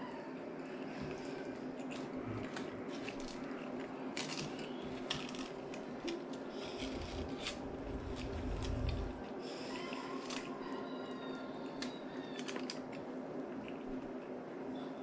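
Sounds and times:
chewing: 0:00.6 - 0:10.7, 0:11.6 - 0:14.4
aluminium foil crinkling: 0:01.8 - 0:09.2.

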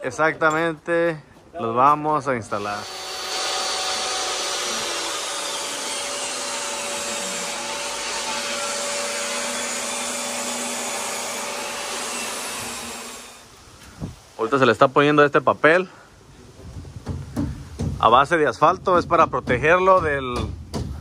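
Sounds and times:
electric motor whining: 0:02.8 - 0:13.4.

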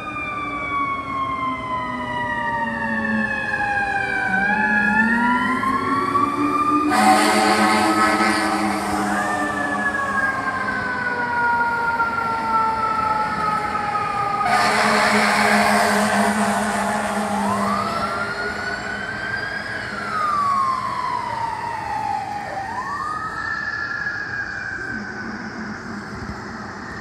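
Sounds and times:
fire truck siren wailing: 0:00.0 - 0:27.0
harsh horn blast: 0:06.9 - 0:10.4, 0:14.4 - 0:19.1.

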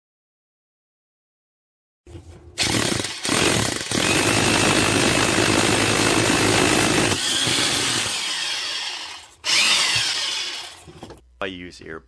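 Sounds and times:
hammer drill boring into concrete: 0:02.6 - 0:10.9.

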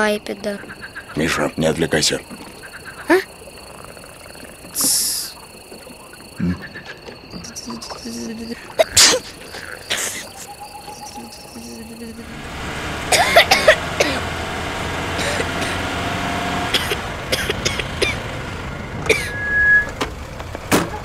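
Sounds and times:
crickets chirring: 0:00.0 - 0:20.4
small car driving: 0:10.6 - 0:21.0.

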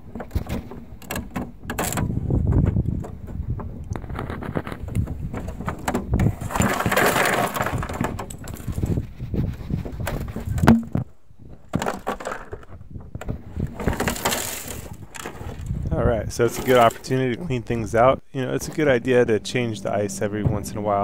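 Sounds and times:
ice cubes rattling in plastic bin: 0:04.2 - 0:09.0, 0:11.7 - 0:12.8, 0:13.7 - 0:15.7, 0:16.5 - 0:17.1.

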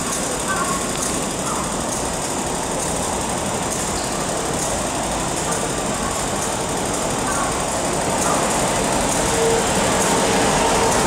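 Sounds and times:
locomotive engine running: 0:00.0 - 0:11.0
rail noise: 0:00.0 - 0:11.0.

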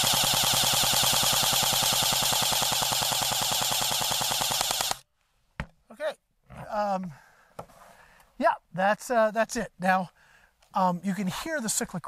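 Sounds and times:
bb rifle full-auto burst: 0:00.0 - 0:05.0.

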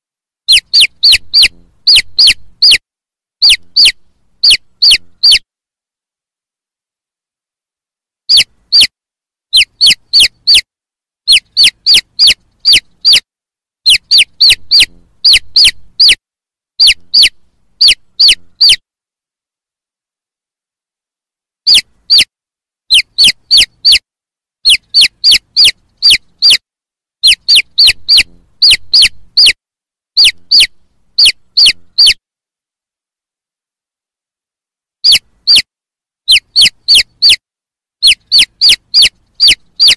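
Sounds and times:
chicks peeping: 0:00.5 - 0:02.8, 0:03.4 - 0:05.4, 0:09.6 - 0:10.6, 0:11.3 - 0:13.2, 0:13.9 - 0:16.2, 0:16.8 - 0:18.8, 0:22.9 - 0:24.0, 0:24.7 - 0:26.6, 0:27.2 - 0:29.6, 0:30.2 - 0:32.2, 0:36.3 - 0:37.4, 0:38.0 - 0:39.9.

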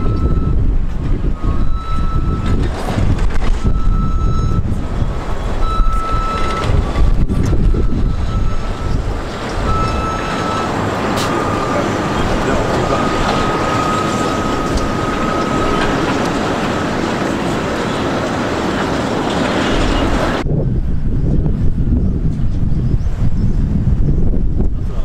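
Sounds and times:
reversing alarm beeping: 0:00.0 - 0:00.6, 0:01.3 - 0:02.6, 0:03.6 - 0:04.6, 0:05.4 - 0:06.8, 0:07.5 - 0:18.3
loud low rumble: 0:00.0 - 0:25.0.

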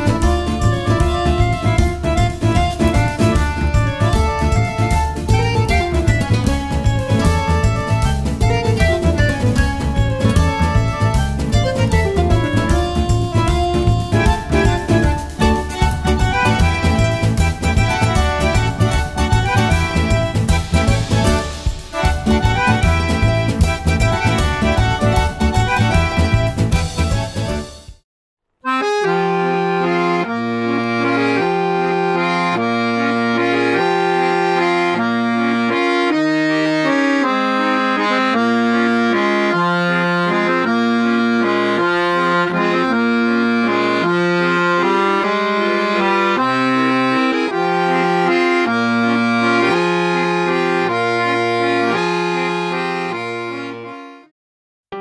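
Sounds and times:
alternating low bass notes: 0:00.0 - 0:27.7
lively accordion tune: 0:00.0 - 0:28.0, 0:28.6 - 0:54.3.

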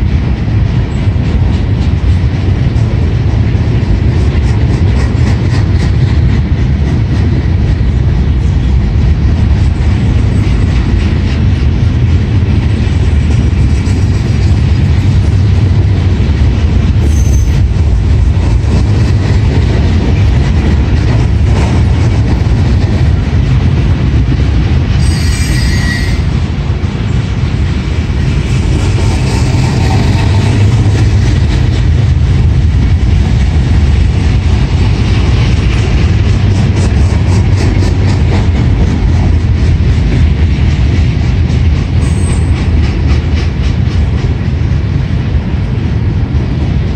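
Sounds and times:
train wheels rumbling on rails: 0:00.0 - 0:46.9
high wheel squeal: 0:17.0 - 0:17.6, 0:25.0 - 0:26.3.

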